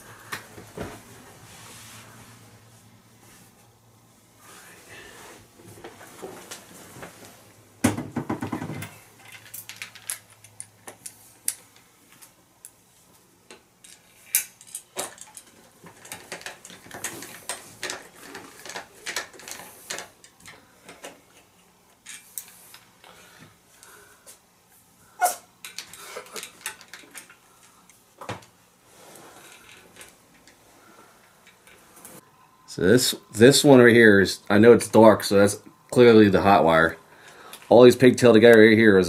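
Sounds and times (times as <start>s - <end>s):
metallic clicks and rattles: 13.5s - 21.2s, 25.6s - 27.7s.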